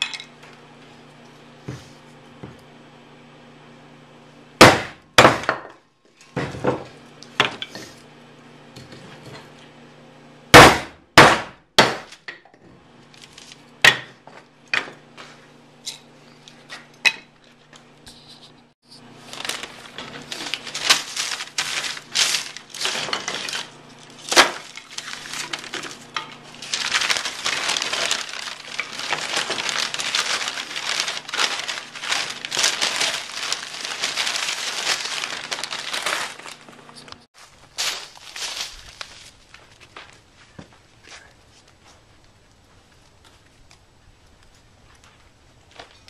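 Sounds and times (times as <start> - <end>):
paper crinkling and crumpling: 13.1 - 13.7, 17.5 - 42.0
wooden sticks clattering: 19.3 - 40.2.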